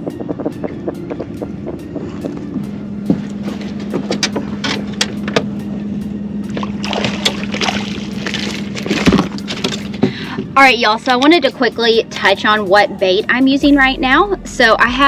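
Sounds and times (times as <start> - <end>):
boat engine low hum: 0.0 - 15.0
water knocking against hull: 6.5 - 10.2
fish splashing at surface: 6.6 - 9.4.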